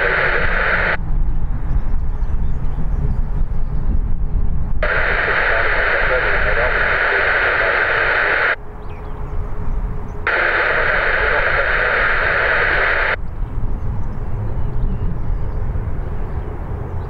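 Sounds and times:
radio static hissing: 0.0s - 1.0s, 4.8s - 8.6s, 10.3s - 13.2s.

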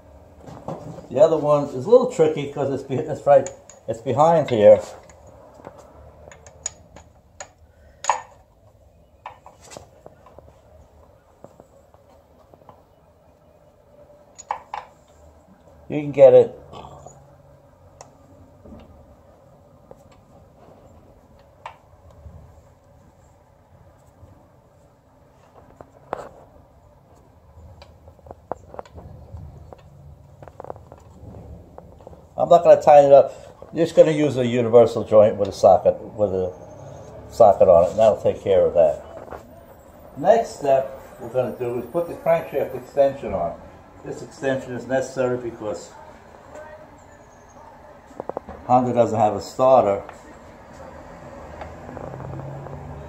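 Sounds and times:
metal parts clicking and tapping: 6.2s - 8.4s.

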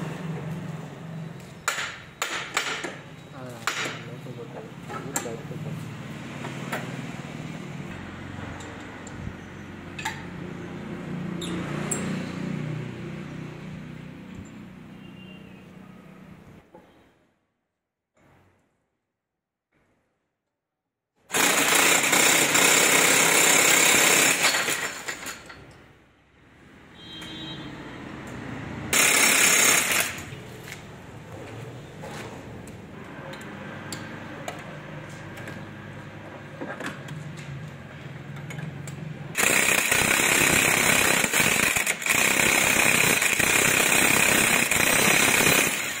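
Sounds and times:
pneumatic impact wrench hammering: 1.6s - 3.0s, 21.3s - 25.6s, 28.9s - 30.8s, 39.3s - 46.0s.

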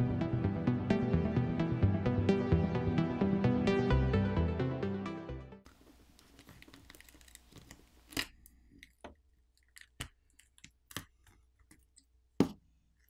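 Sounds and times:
adhesive crackling: 6.1s - 11.8s.

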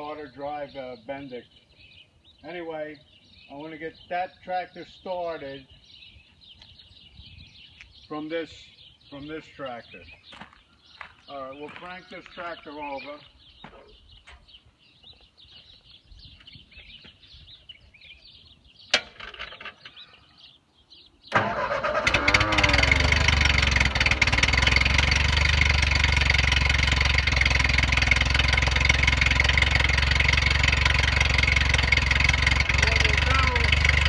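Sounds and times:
tractor engine starting and running: 18.9s - 20.1s, 21.3s - 34.0s.

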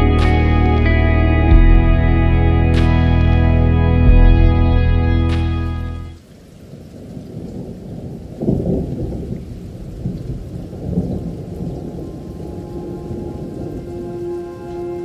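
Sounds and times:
held music chord: 0.0s - 6.2s, 12.1s - 15.0s
rain: 0.0s - 15.0s
rolling thunder: 7.2s - 14.3s.

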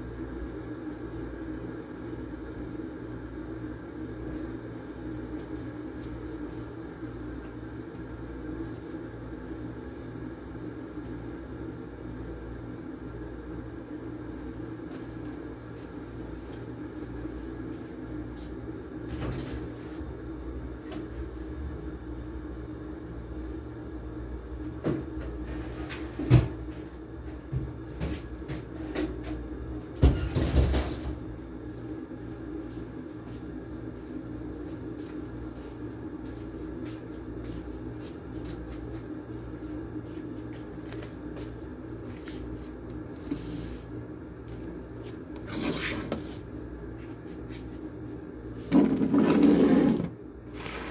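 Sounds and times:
air conditioner humming: 0.0s - 50.9s.

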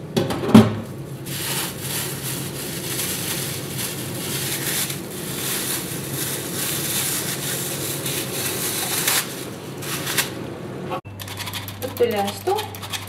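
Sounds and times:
plastic bag crinkling: 1.0s - 10.4s.

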